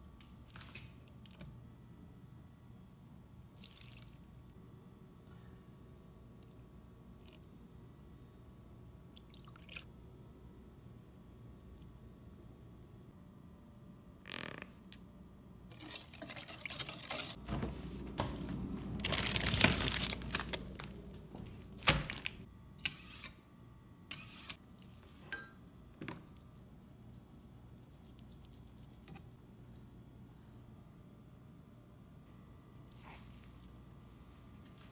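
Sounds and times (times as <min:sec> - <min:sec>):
rustling and handling: 0:15.7 - 0:22.5.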